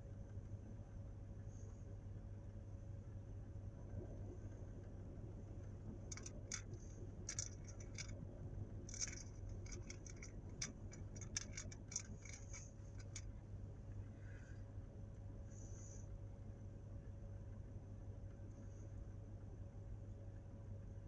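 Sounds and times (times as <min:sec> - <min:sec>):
low steady hum: 0:00.0 - 0:21.0
small plastic toy pieces clicking: 0:06.1 - 0:08.2, 0:08.9 - 0:13.3.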